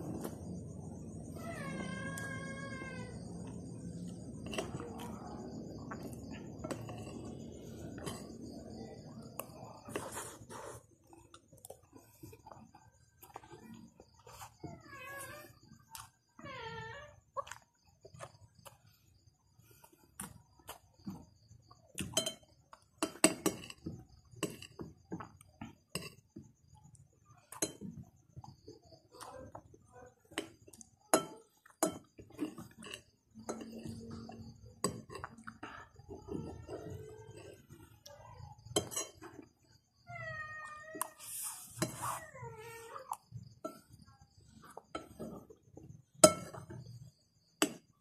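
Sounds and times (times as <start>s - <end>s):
cat meowing: 1.3s - 3.2s, 40.1s - 41.2s
metal spoon scraping a plate: 38.7s - 39.3s, 41.2s - 42.2s.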